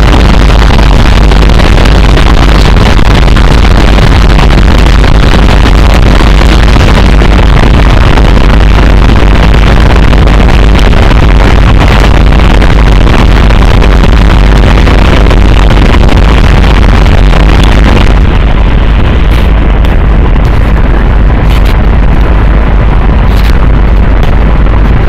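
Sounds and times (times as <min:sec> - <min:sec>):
heavily distorted noise music: 0:00.0 - 0:25.0.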